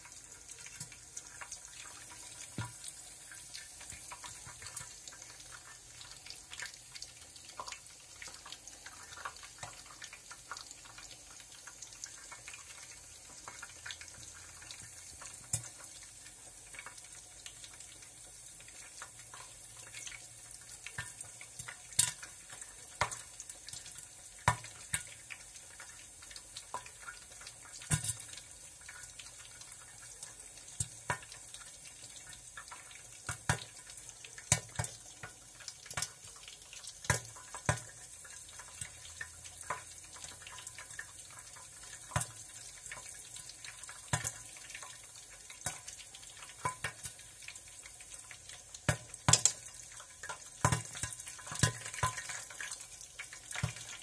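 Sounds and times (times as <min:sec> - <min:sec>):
sharp pops and crackles: 0:00.7 - 0:11.0, 0:13.4 - 0:16.0, 0:20.8 - 0:25.4, 0:26.6 - 0:28.4, 0:32.6 - 0:40.8, 0:42.0 - 0:43.1, 0:44.0 - 0:45.0, 0:48.7 - 0:52.8.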